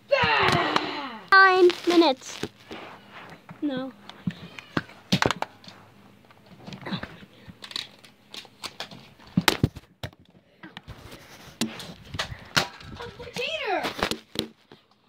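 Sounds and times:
rustling: 1.3s - 5.0s.

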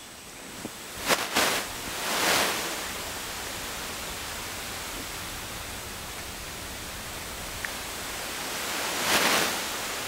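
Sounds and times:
steady hiss: 0.0s - 10.0s
rustling noise: 0.5s - 10.0s.

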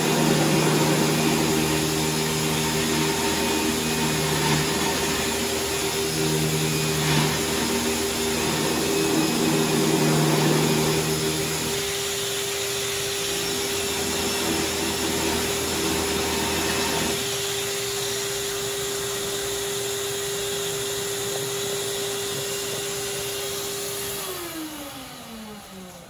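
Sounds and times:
orbital sander whining: 0.0s - 26.0s.

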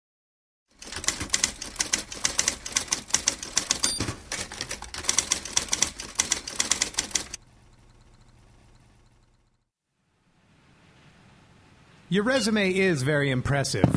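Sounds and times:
typewriter keys clacking: 0.8s - 7.4s
typewriter bell ding: 3.6s - 4.3s.

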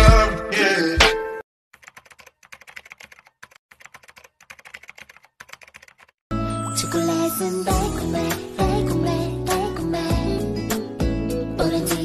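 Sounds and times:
computer keyboard typing: 1.8s - 6.2s.

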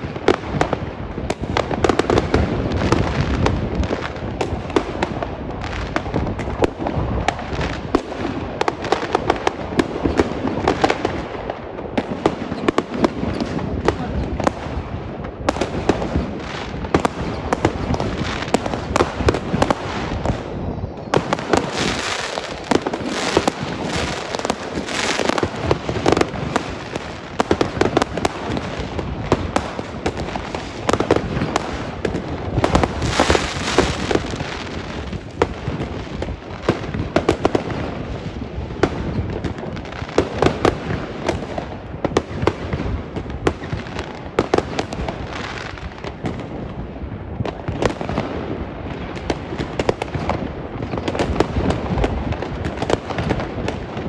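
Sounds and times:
fireworks hissing crackle: 0.0s - 54.0s
fireworks pops and bangs: 0.0s - 54.0s.

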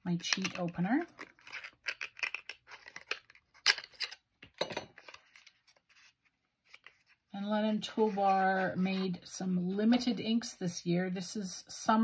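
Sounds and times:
paper rustling: 5.0s - 7.3s.

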